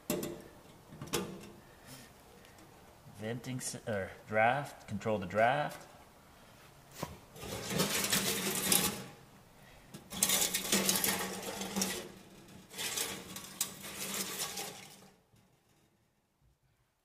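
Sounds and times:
sheet-metal stovepipe scraping and rattling: 7.4 - 9.2, 9.9 - 15.9.

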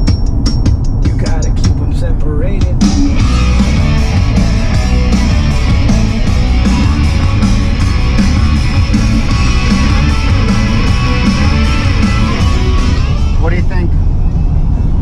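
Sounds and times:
punk rock song: 0.0 - 13.7.

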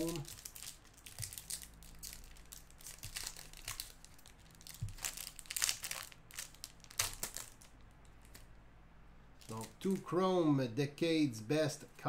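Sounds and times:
foil wrapper tearing and crinkling: 0.0 - 8.5.

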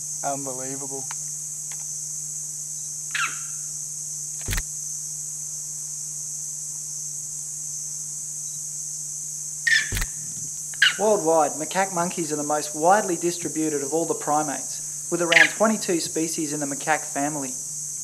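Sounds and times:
high-pitched insect drone: 0.0 - 18.0
animal squeal: 3.1 - 3.6, 15.2 - 15.6
sharp click: 4.4 - 4.7, 9.7 - 10.8.

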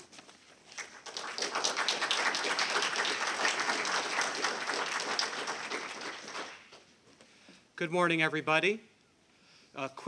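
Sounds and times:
audience applauding: 0.7 - 6.8.

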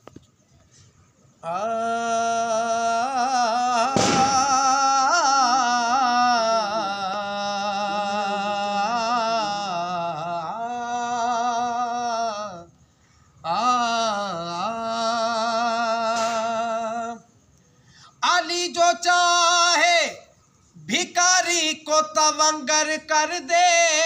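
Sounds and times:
man singing wordless long notes: 1.4 - 12.8, 13.4 - 17.3, 18.2 - 24.0
sharp knock: 4.0 - 4.5, 16.2 - 16.5.

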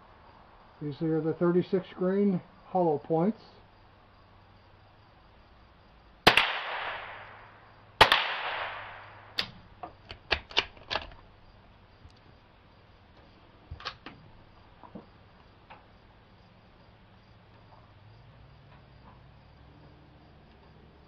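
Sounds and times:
rifle shots echoing: 6.3 - 7.4, 8.0 - 9.4.

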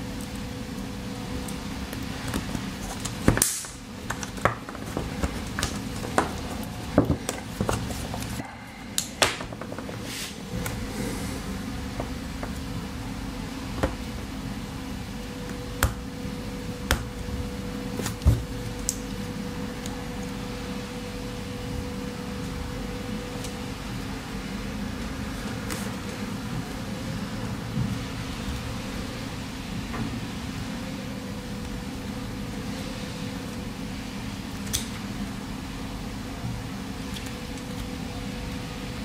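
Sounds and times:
background hum: 0.0 - 39.0.

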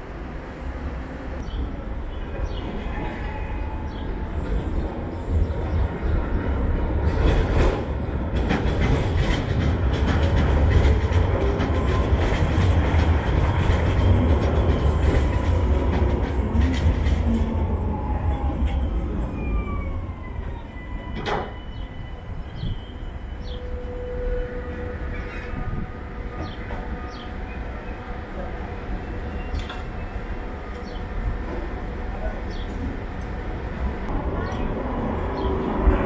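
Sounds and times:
tram rumbling past: 0.0 - 36.0
tram whine: 0.0 - 36.0
wheels clacking on rails: 3.9 - 21.6.

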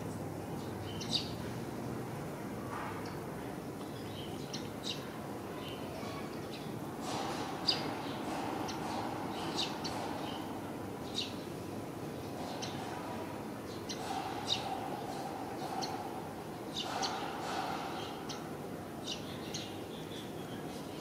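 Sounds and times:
steady background noise: 0.0 - 21.0
small birds chirping: 3.8 - 11.6, 12.2 - 21.0.

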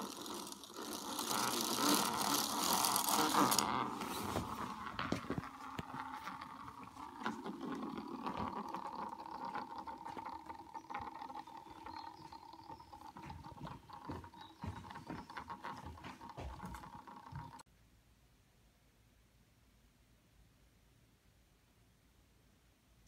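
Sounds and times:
spinning top whirring on wood: 0.0 - 17.6.

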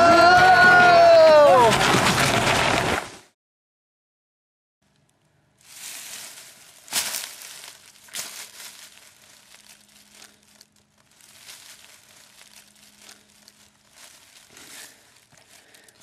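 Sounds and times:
dry leaves crunching and rustling: 5.6 - 16.0.

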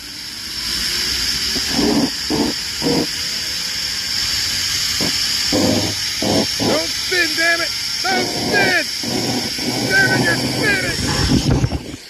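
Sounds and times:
zip line trolley on cable: 0.0 - 12.0
wind rushing over microphone: 10.5 - 12.0.

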